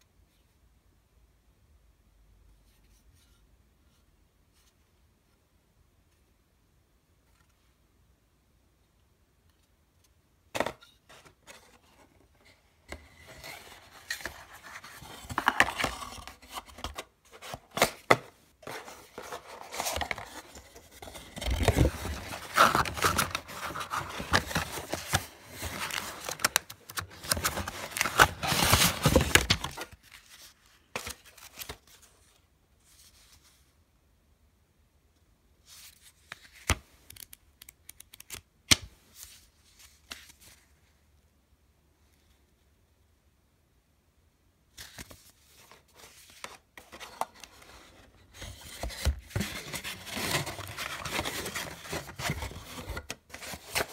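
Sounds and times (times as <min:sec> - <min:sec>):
paper rustling: 0:13.2 - 0:32.1, 0:44.8 - 0:53.9
cardboard scraping and sliding: 0:18.6 - 0:29.9.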